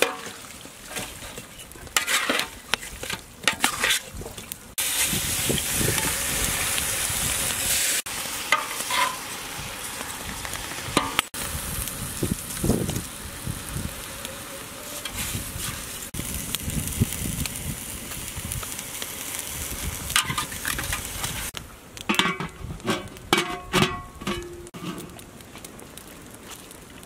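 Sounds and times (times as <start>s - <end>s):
seasoning sprinkling hiss: 4.5s - 21.9s
metal lid clanking: 8.6s - 9.2s, 22.1s - 25.1s.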